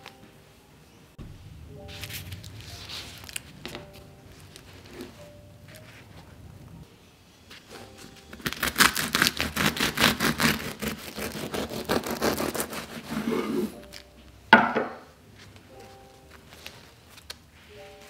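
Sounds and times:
bread knife sawing through crust: 8.5 - 13.7.

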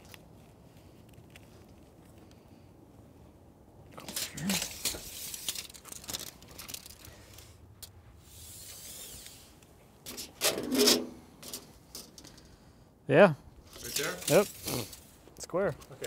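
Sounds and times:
smooth hiss: 7.0 - 9.8.

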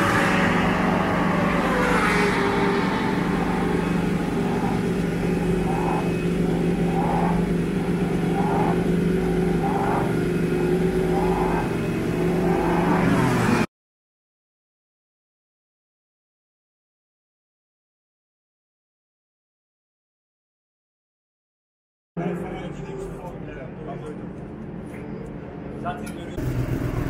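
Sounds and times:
motorcycle engine idling: 3.0 - 12.9, 26.4 - 27.0.

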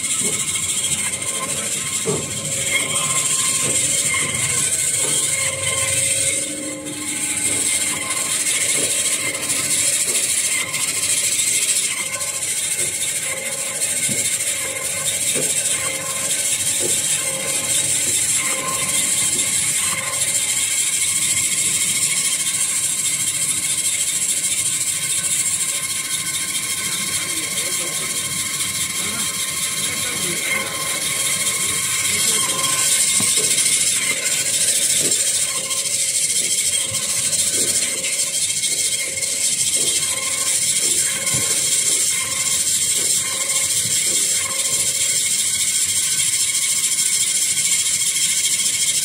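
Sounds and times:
band saw hiss and hum: 0.0 - 12.5, 26.7 - 45.9.

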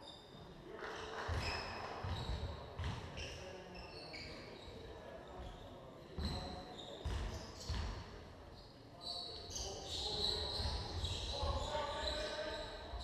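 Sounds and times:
sneakers squeaking on floor: 1.2 - 8.0, 8.6 - 13.0
basketball bouncing on wooden floor: 2.0 - 3.0.

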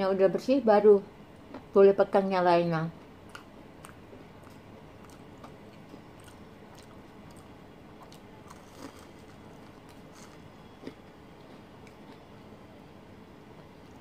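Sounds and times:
chewing crispy fritters: 3.2 - 12.5.

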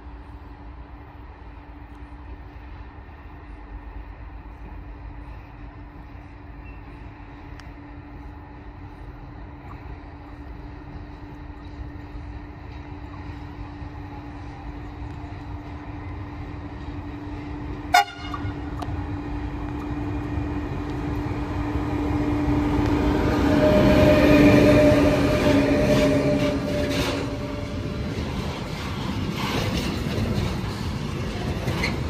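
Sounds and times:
electric locomotive hum: 0.0 - 32.0
train horn toot: 17.8 - 18.8, 23.3 - 27.7.

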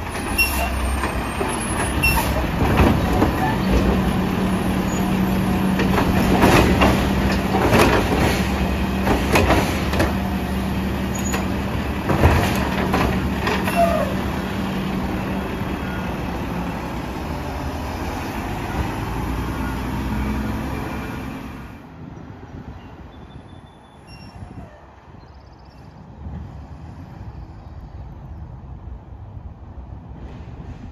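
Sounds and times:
garbage truck diesel engine running: 0.0 - 21.6
quiet street: 0.0 - 30.9
trash cart banging against hopper: 0.1 - 15.1.

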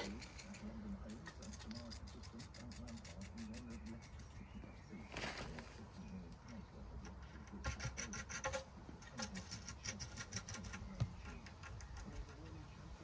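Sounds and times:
rapid clicking of plastic fittings: 7.0 - 12.5.

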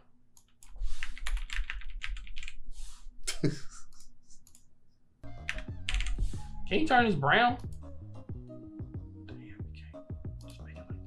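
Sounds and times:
keyboard typing: 0.4 - 2.6, 5.4 - 6.2.

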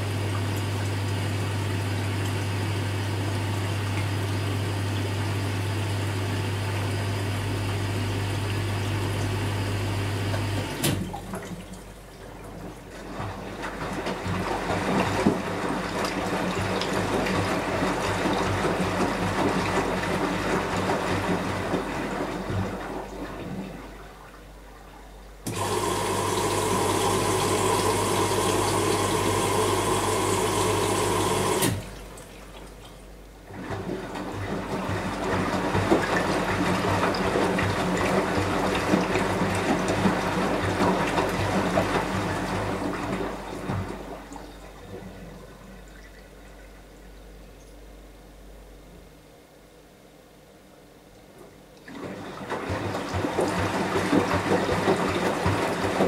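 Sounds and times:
washing machine drum tumbling: 12.4 - 23.6, 33.4 - 44.3, 51.8 - 56.0.

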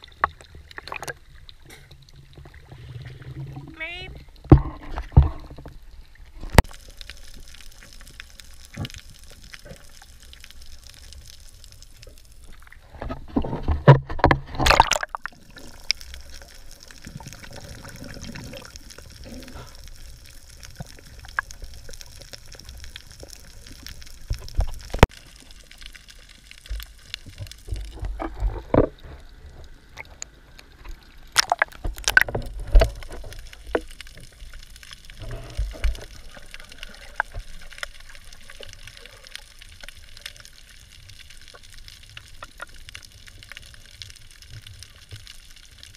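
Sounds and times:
underwater sloshing and bubbling: 0.0 - 45.9
splashes and knocks: 12.9 - 15.4, 31.3 - 34.0.

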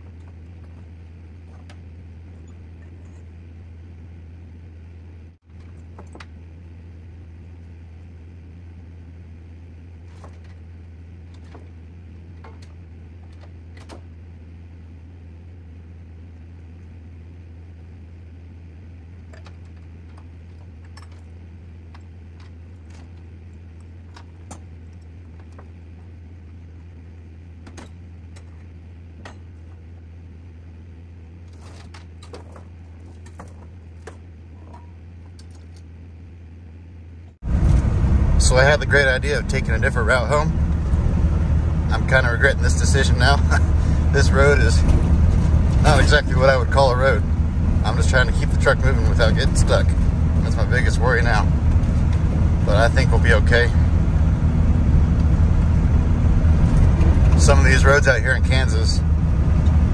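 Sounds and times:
truck engine drone: 0.0 - 59.9.

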